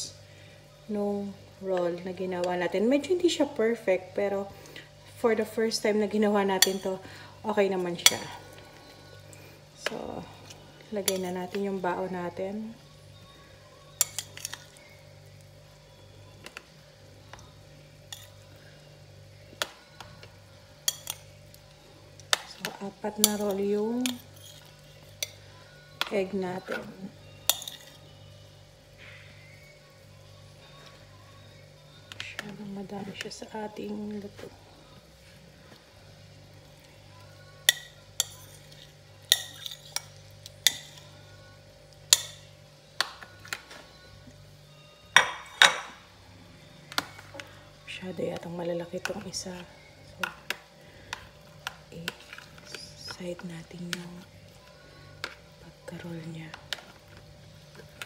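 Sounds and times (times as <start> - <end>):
faint low hum: 0.0 - 58.0
metal spoon clinking against bowl: 6.6 - 7.0, 14.0 - 14.8, 20.8 - 21.3, 22.3 - 25.4, 27.4 - 28.0, 37.7 - 41.1, 42.1 - 42.5.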